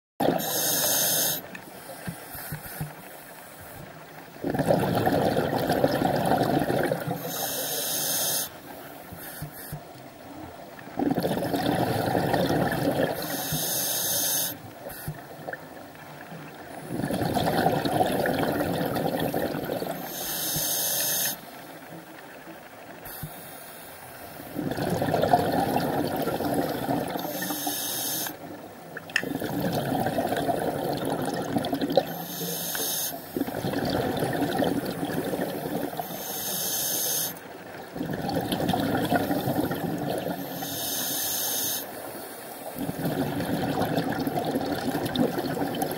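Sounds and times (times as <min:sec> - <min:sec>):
bubbling exhaust underwater: 0:00.2 - 0:03.0, 0:03.8 - 0:23.5, 0:24.4 - 0:41.9, 0:42.6 - 0:45.9
regulator demand valve hiss: 0:00.4 - 0:03.8, 0:07.2 - 0:09.8, 0:13.2 - 0:15.2, 0:20.0 - 0:21.5, 0:27.3 - 0:28.4, 0:32.1 - 0:33.3, 0:36.0 - 0:37.4, 0:40.4 - 0:42.8.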